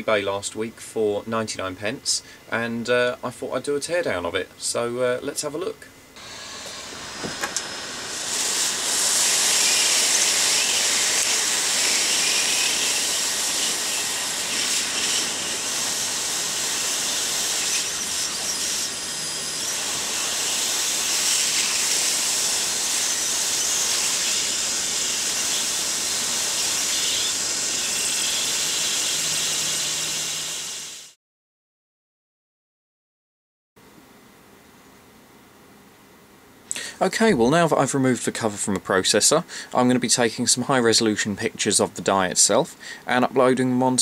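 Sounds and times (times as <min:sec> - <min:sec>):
gas torch hissing: 0:06.2 - 0:31.2.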